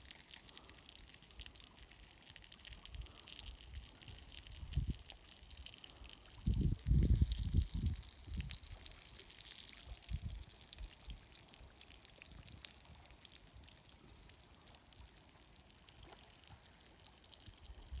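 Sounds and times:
low microphone rumbles: 0:06.4 - 0:08.7.

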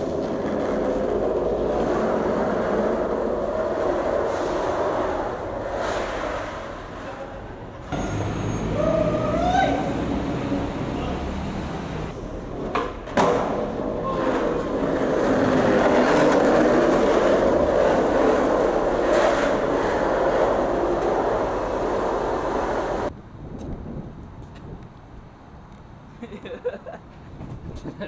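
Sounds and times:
skateboard clacks: 0:00.0 - 0:06.4, 0:12.5 - 0:23.1
skateboard wheels rolling on concrete: 0:00.0 - 0:28.0.

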